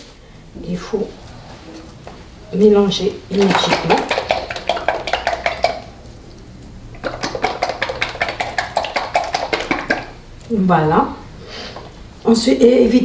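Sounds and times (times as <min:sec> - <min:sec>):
liquid sloshing in shaken bottle: 0:03.3 - 0:06.0, 0:07.0 - 0:10.2.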